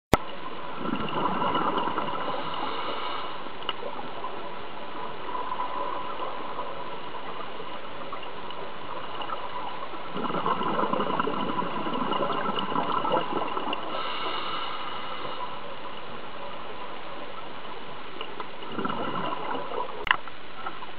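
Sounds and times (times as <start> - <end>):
steady underwater hiss: 0.2 - 20.9
bubbly surges of exhaled air: 0.7 - 3.0, 9.3 - 14.5, 18.6 - 20.1.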